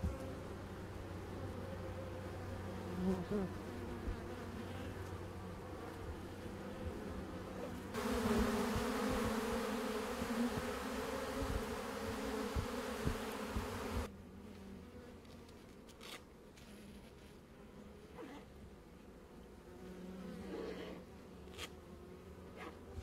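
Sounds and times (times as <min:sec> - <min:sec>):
honey bees buzzing: 0:00.0 - 0:14.1.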